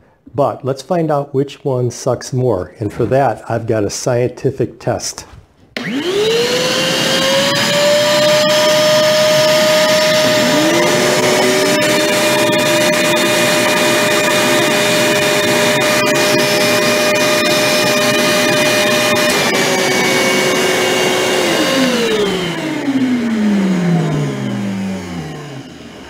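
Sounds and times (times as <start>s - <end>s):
second shop vacuum lower pitch: 5.8s - 26.0s
shop vacuum whine: 5.8s - 26.0s.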